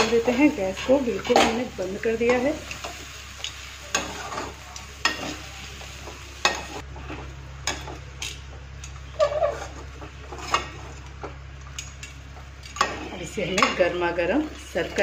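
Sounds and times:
metal spatula scraping a wok: 0.2s - 2.5s, 3.9s - 5.5s, 9.1s - 10.9s.

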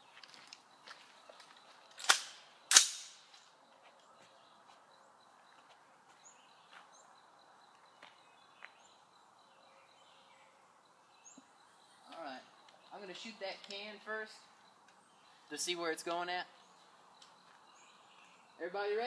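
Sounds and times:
sharp gunshots: 2.0s - 3.3s.

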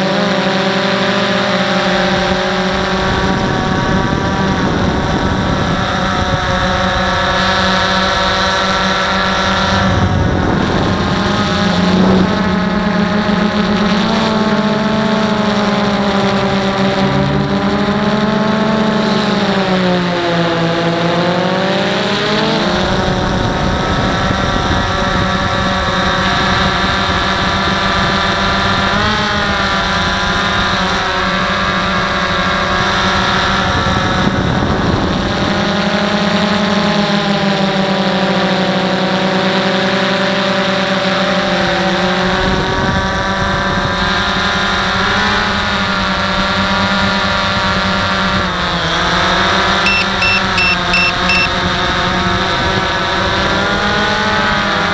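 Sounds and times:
drone motors and propellers whining: 0.0s - 25.5s, 49.9s - 51.5s
low microphone rumble: 9.7s - 18.9s.

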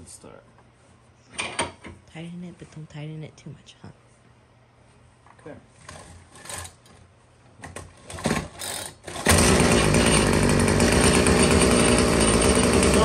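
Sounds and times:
pull-start cord scraping: 7.7s - 13.0s
small engine running: 9.1s - 13.0s.

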